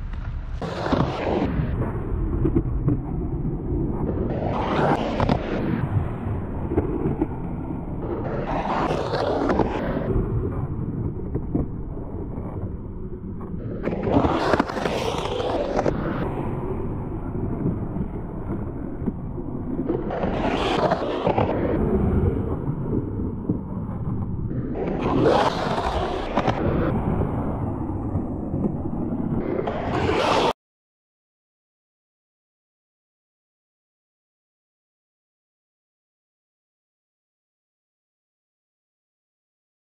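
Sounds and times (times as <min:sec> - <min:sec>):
skateboard wheels rolling on concrete: 0:00.0 - 0:30.6.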